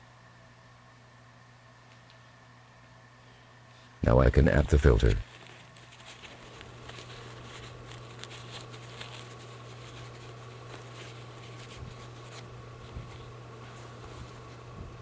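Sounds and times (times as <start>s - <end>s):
steady low hum: 0.0s - 15.0s
paper rustling: 5.0s - 15.0s.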